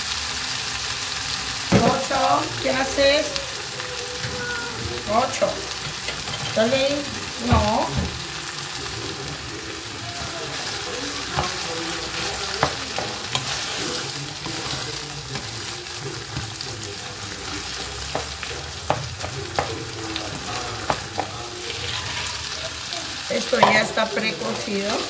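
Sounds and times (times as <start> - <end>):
food sizzling in oil: 0.0 - 25.0.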